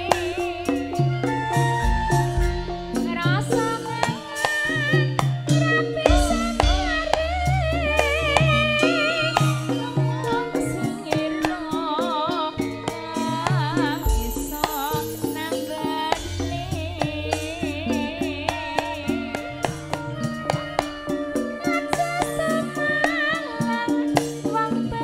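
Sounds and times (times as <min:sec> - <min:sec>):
folk-pop song over loudspeakers: 0:00.0 - 0:25.0
hand-drum hits: 0:00.0 - 0:25.0
deep bass line: 0:06.1 - 0:10.1.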